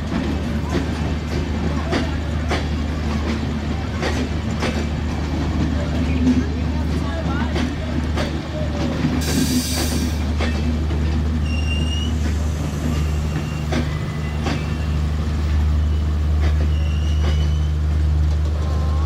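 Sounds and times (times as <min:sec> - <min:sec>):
train wheels knocking over rail joints: 0:00.0 - 0:14.9
wheel squeals: 0:11.4 - 0:17.8.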